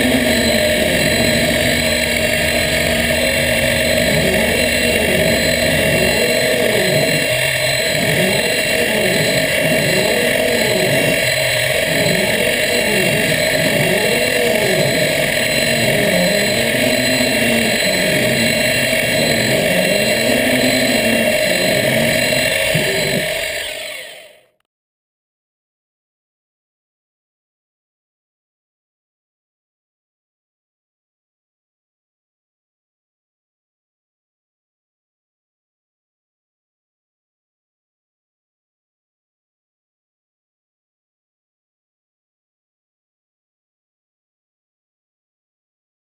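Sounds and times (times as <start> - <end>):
machine drive rising and falling: 0.0 - 24.4
milling machine spindle whine: 0.0 - 24.4.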